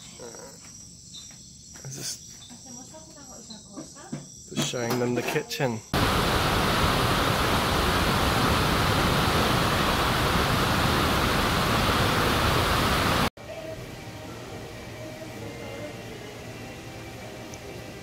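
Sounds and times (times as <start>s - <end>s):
falling water rushing: 6.0s - 13.3s.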